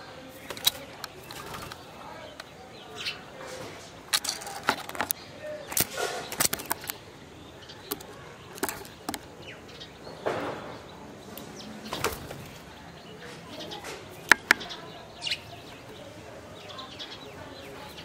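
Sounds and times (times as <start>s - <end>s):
doves flapping wings: 0.4s - 2.5s, 11.8s - 12.7s
sharp taps: 14.3s - 14.8s.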